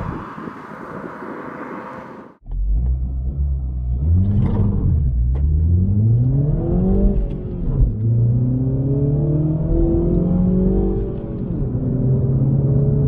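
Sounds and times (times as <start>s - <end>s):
car engine accelerating hard: 2.8s - 13.0s.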